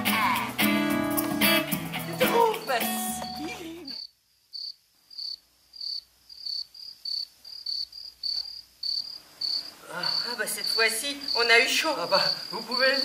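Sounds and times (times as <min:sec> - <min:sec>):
guitar music: 0:00.0 - 0:04.0
crickets chirping: 0:02.2 - 0:13.0.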